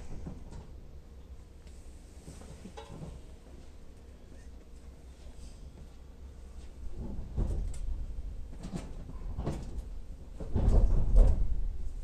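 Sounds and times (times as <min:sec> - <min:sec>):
train running rumble: 0:00.0 - 0:12.0
clunks and knocks: 0:02.5 - 0:03.2, 0:07.0 - 0:07.9, 0:08.5 - 0:11.7.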